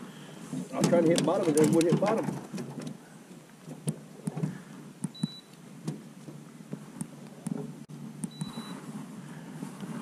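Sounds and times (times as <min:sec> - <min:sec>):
short high beeps: 0:05.2 - 0:05.5, 0:08.3 - 0:08.8.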